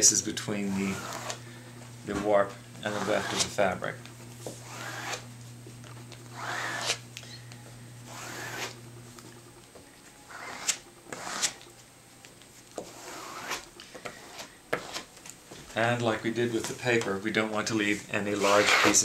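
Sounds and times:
low steady hum: 0.0 - 19.0
scraper dragged across wet fabric: 2.9 - 3.5, 8.1 - 8.8, 12.8 - 15.1, 17.9 - 19.0.

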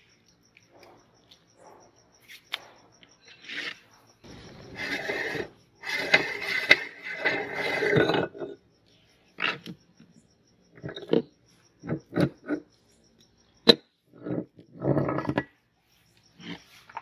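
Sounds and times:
meat grinder parts scraping: 4.4 - 8.6.

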